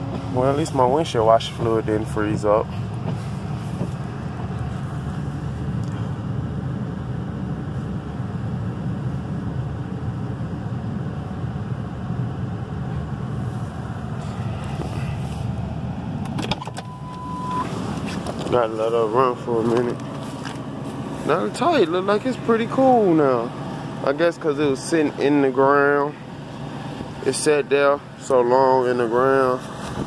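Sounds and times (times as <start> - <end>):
car engine running: 0.0 - 30.0.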